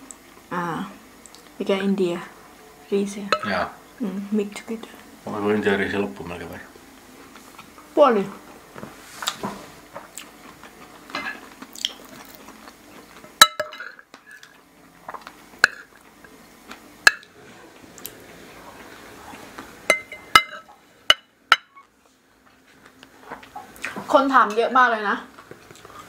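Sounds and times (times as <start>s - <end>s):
cutlery clinking on plates: 13.4s - 14.0s, 19.9s - 21.8s.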